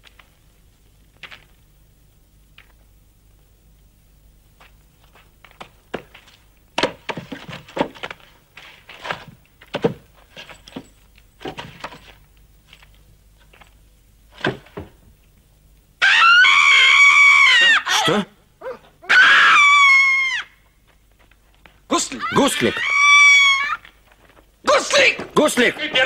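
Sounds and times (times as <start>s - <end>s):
woman screaming: 16.0s - 20.6s, 22.0s - 23.8s.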